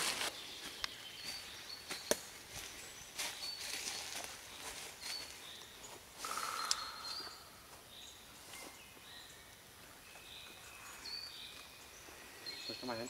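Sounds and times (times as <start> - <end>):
short high bird calls: 6.2 - 7.7.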